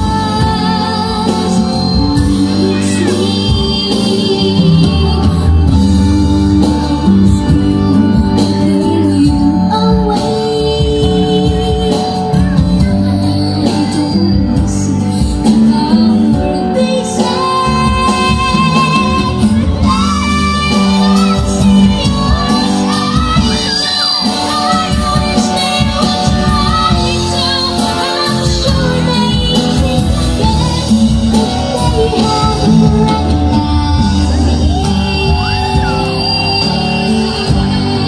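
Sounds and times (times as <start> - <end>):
boy singing into a microphone: 0.0 - 38.0
loud backing music: 0.0 - 38.0
crowd shouting: 34.3 - 38.0.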